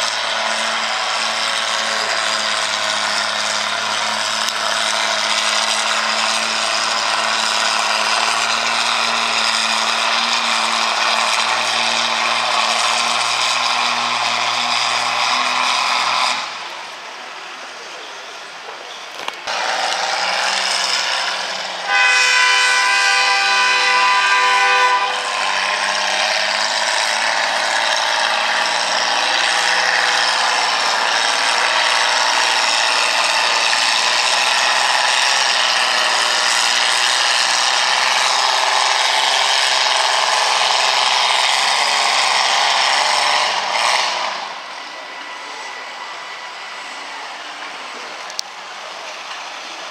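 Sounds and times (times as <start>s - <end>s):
tractor engine at full throttle: 0.0s - 49.9s
horn-like tone: 21.9s - 26.0s.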